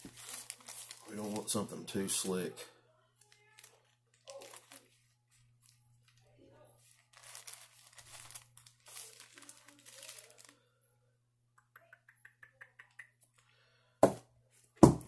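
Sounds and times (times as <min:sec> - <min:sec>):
rustling and crinkling: 0:00.0 - 0:02.4, 0:03.2 - 0:10.6.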